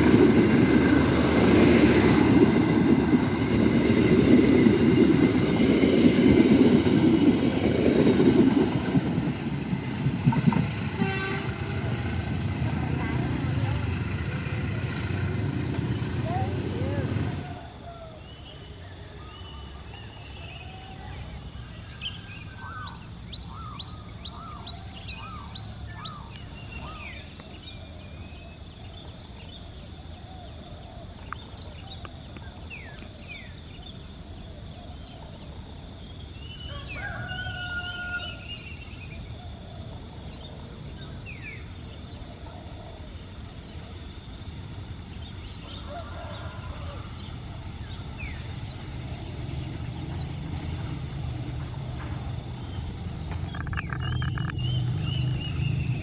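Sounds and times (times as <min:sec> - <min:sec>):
birds chirping and whistling: 0:53.4 - 0:56.0.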